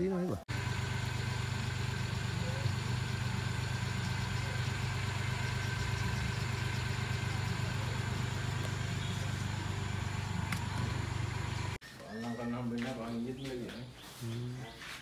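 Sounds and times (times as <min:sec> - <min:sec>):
concrete mixer engine running: 0:00.5 - 0:11.8.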